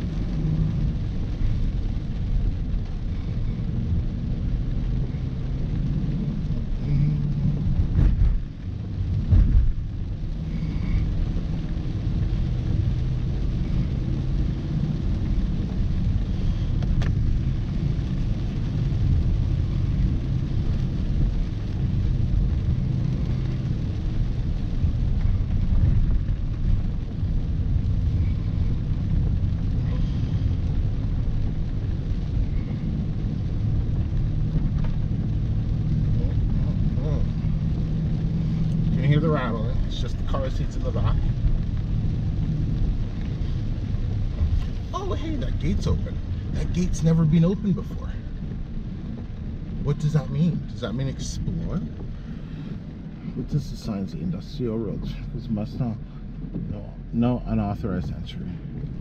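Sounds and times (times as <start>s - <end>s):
car engine hum: 0.0s - 59.0s
tyre and road noise on gravel: 6.0s - 53.1s.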